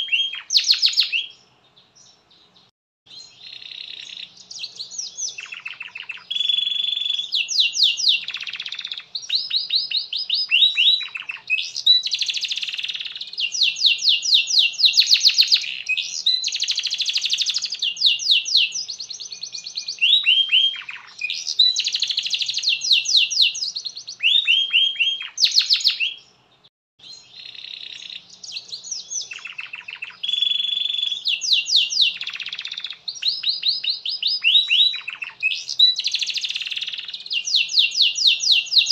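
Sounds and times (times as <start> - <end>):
canary singing trills: 0.0 - 38.9.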